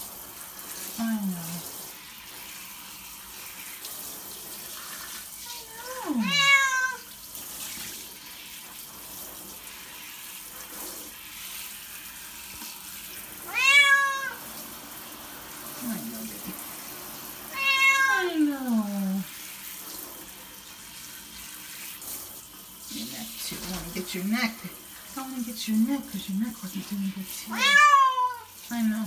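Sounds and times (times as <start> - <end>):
shower spray hissing: 0.0 - 29.0
cat meowing: 5.5 - 7.1, 13.4 - 14.4, 17.5 - 18.5, 27.5 - 28.6.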